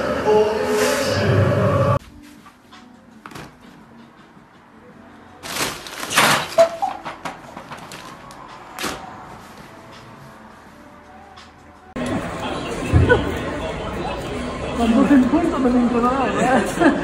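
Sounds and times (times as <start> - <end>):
fabric tunnel rustling on wooden floor: 5.4 - 6.8.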